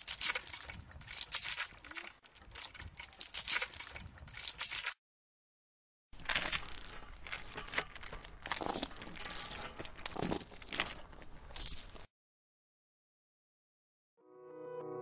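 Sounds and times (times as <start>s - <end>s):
chain rattling and clinking: 0.0s - 5.0s, 6.2s - 12.1s.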